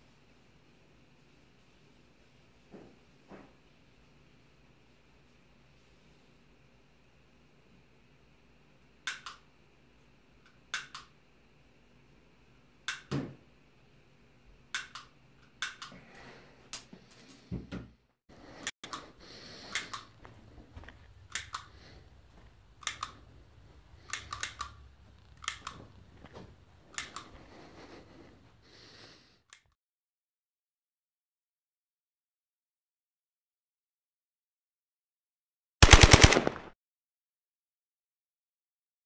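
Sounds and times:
handgun mechanical clicks: 21.3 - 21.8, 22.8 - 23.2, 24.1 - 25.8, 35.8 - 36.7.

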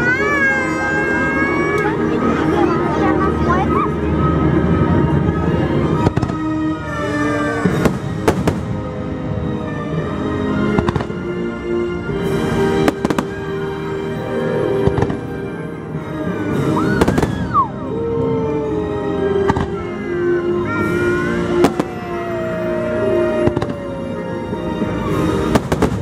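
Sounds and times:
orchestral music: 0.0 - 26.0
fireworks bursting: 5.9 - 8.9, 10.7 - 11.3, 12.2 - 13.9, 14.5 - 15.4, 16.6 - 17.7, 19.4 - 20.1, 20.7 - 26.0.

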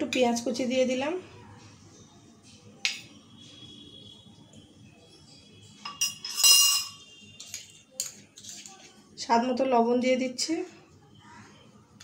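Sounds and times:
metal bowl set down: 5.8 - 8.7
spoon clinking steel bowl: 5.8 - 8.7.

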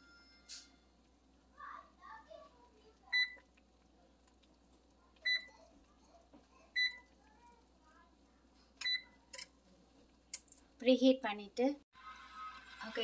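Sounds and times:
oven keypad beeping: 3.1 - 3.4, 5.2 - 5.5, 6.8 - 7.1, 8.8 - 9.2.

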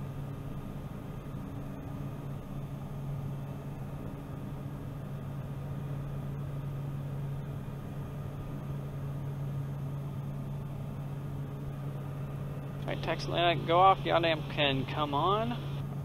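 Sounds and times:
turboprop engine droning: 0.0 - 16.0
steady hiss: 12.9 - 15.8.

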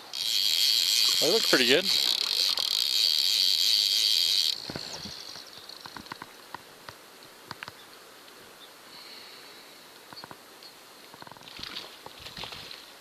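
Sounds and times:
high-pitched buzz: 0.0 - 5.4.

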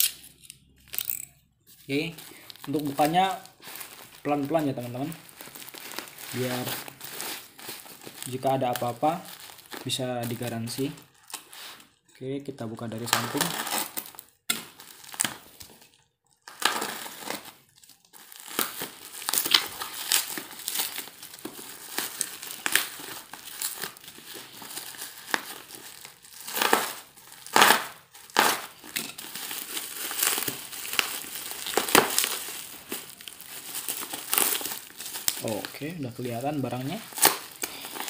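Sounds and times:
plastic wrapping crinkling: 0.0 - 38.0.

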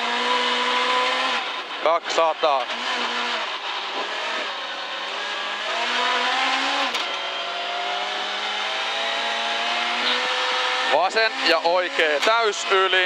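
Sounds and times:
rally car engine revving: 0.0 - 13.0.

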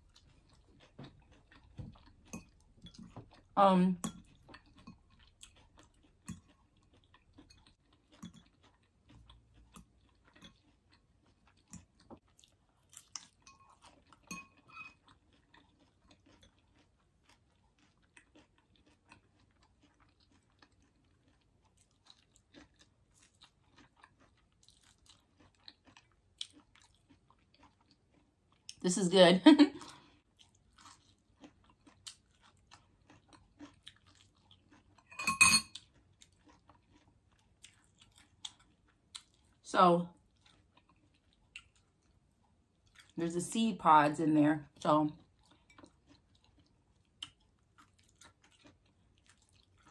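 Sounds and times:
chewing salad: 0.0 - 29.0, 29.6 - 49.9
fork tapping glass bowl: 14.3 - 14.9, 35.1 - 35.7.

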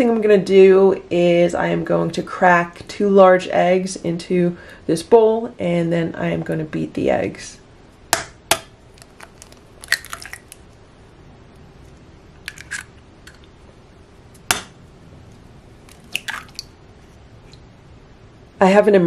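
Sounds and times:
eggshells cracking: 8.6 - 10.8, 12.3 - 13.5, 15.8 - 16.7.

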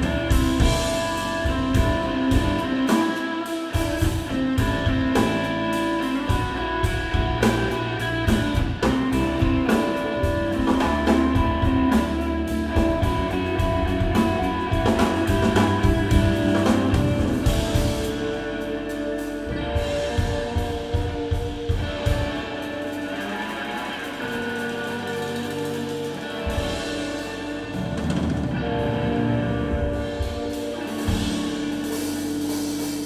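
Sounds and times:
drum kit: 0.0 - 33.0
electric bass: 0.0 - 33.0
electric guitar: 0.0 - 33.0.

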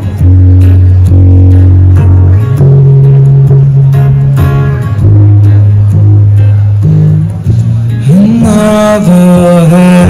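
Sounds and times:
acoustic guitar strumming: 0.0 - 10.0
deep bass notes: 0.0 - 10.0.

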